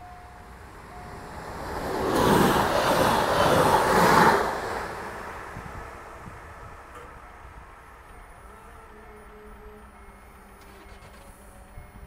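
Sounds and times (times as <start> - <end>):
level-crossing warning beeps: 0.0 - 1.6, 6.6 - 12.0
train rushing past: 0.0 - 12.0.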